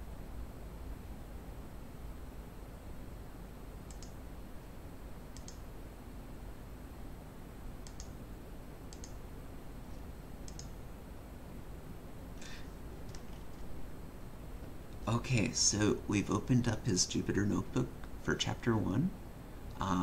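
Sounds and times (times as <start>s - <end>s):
low room hum: 0.0s - 20.0s
computer mouse clicking: 3.9s - 4.2s, 5.3s - 5.6s, 7.8s - 8.2s, 8.9s - 9.2s, 9.9s - 10.8s, 13.0s - 13.7s.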